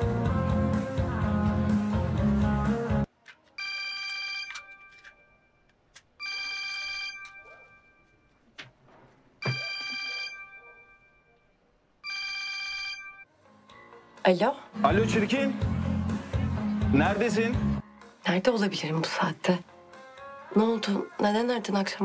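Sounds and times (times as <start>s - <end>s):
smartphone ringing: 3.6s - 5.6s, 6.2s - 8.0s, 9.4s - 11.1s, 12.0s - 13.3s.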